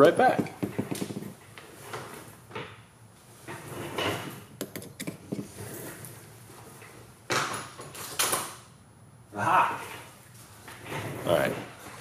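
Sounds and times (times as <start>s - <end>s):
drawer sliding: 3.5s - 4.5s.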